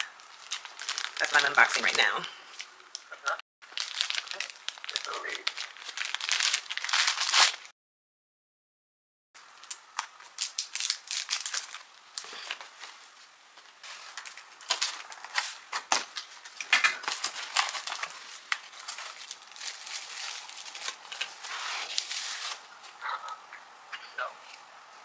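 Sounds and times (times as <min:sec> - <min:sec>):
packaging rustling and crinkling: 0:00.0 - 0:03.1, 0:03.7 - 0:07.7, 0:09.5 - 0:23.0.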